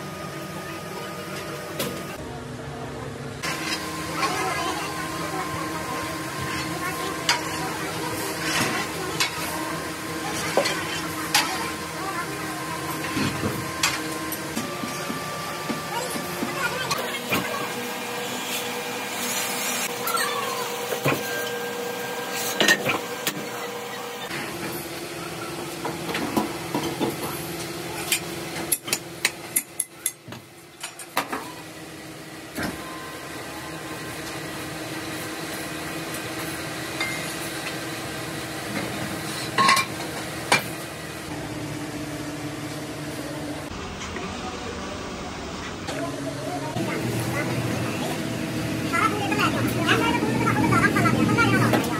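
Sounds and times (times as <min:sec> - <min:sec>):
mixer motor humming: 0:03.4 - 0:28.7.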